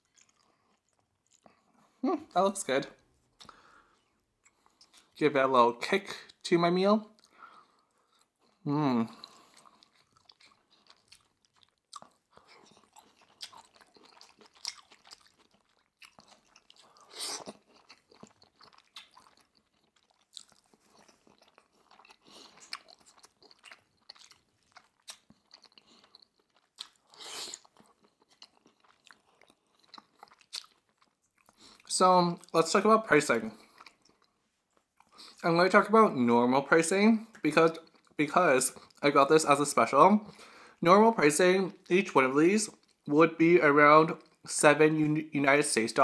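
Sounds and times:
person chewing: 0.0s - 2.3s, 3.2s - 5.2s, 7.1s - 32.6s, 33.4s - 35.4s, 37.3s - 39.1s, 42.7s - 43.1s
wet mouth sounds: 8.2s - 31.9s.

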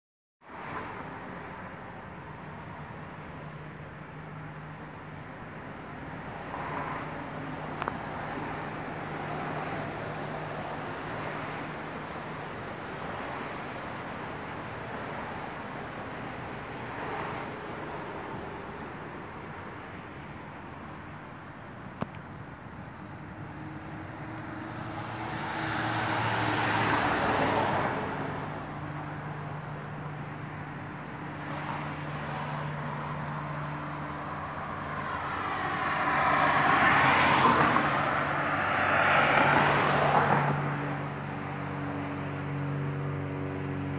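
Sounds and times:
vehicle passing: 23.3s - 43.9s
high-pitched insect chirring: 40.5s - 43.9s.

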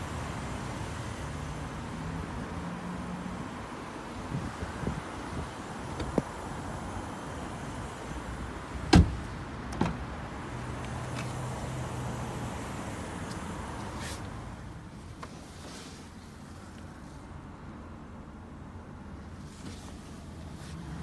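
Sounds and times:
car door thud: 8.9s - 10.0s.

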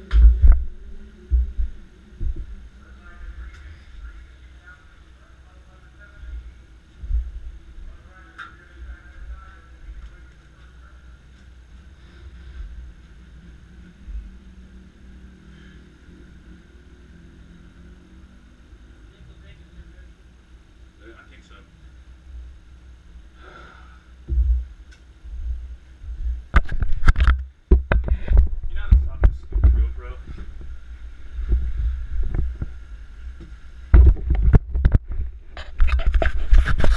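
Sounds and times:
faint engine hum: 0.0s - 26.5s, 27.2s - 34.4s
loud bumps: 24.2s - 36.9s
camera handling rumble: 26.5s - 30.8s, 33.9s - 36.9s.

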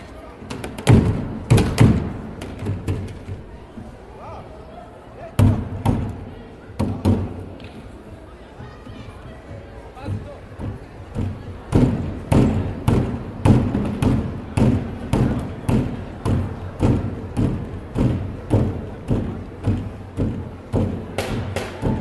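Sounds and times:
wheelie bins drummed by hand: 0.5s - 3.4s, 9.5s - 22.0s.

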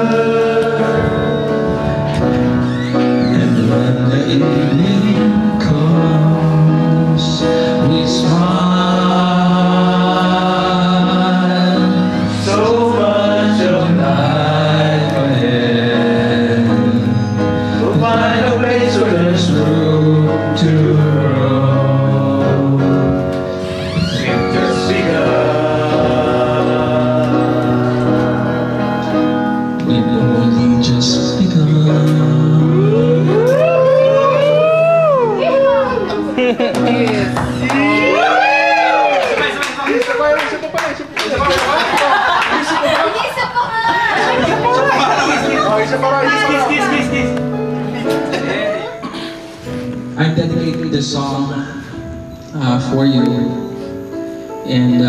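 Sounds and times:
man singing into microphone: 0.0s - 2.3s, 3.0s - 35.0s
instrumental accompaniment: 0.0s - 39.7s, 43.7s - 55.0s.

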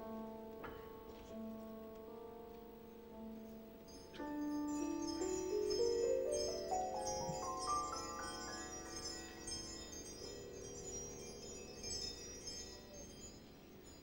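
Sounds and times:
bell-like chimes: 3.9s - 14.0s.

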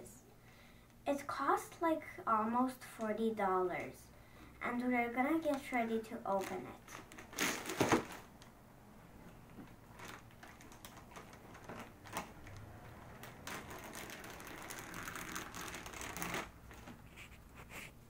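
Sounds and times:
plastic bag crinkling: 6.3s - 8.4s, 9.6s - 17.3s
plastic bag ripping: 6.4s - 8.3s, 9.9s - 17.0s.

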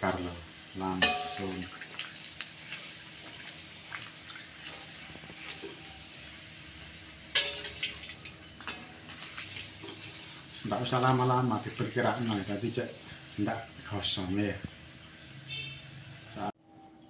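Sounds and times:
cracker sizzling in hot oil: 0.0s - 16.4s.

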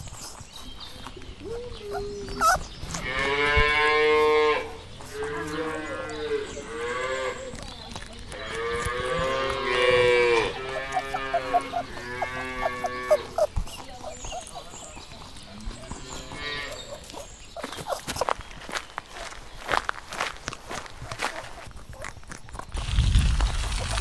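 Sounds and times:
cattle mooing: 8.6s - 13.4s.

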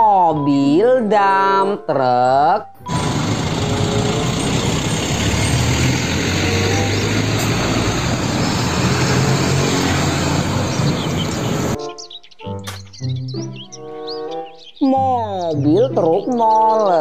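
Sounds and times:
road and tyre noise: 2.8s - 11.8s
truck diesel engine driving by: 2.8s - 11.8s.

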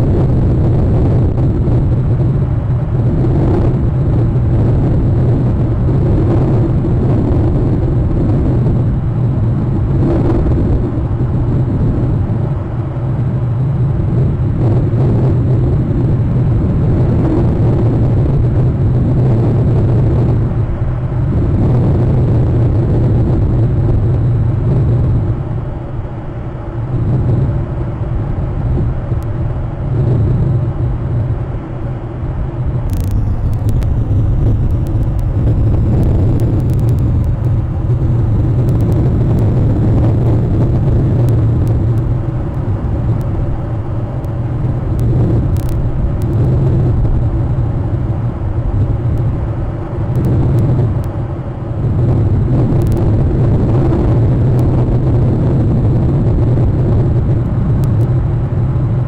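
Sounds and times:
steady low rumble: 0.0s - 59.0s
faint clicks: 32.9s - 39.7s, 44.2s - 46.5s.

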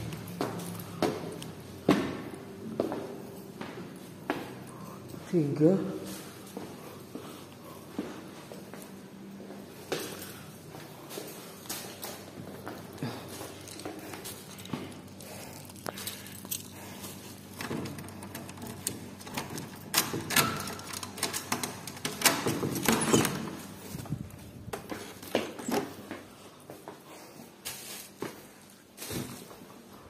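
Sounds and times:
keys jangling: 13.1s - 23.8s.

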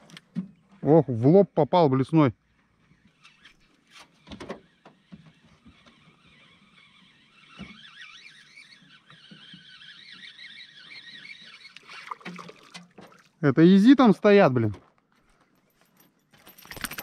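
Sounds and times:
spinning reel whirring: 4.6s - 11.9s.

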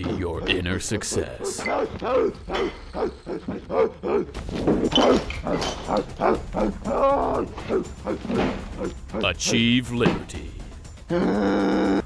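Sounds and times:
person imitating gorilla grunts: 11.1s - 12.0s.

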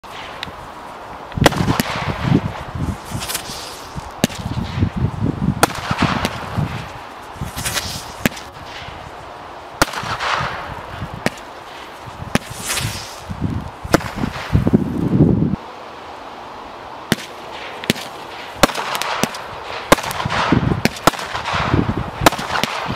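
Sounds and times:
firework hiss and crackle: 0.0s - 22.9s
firework bangs: 1.4s - 4.9s, 5.5s - 9.0s, 9.8s - 14.8s, 17.1s - 22.9s.

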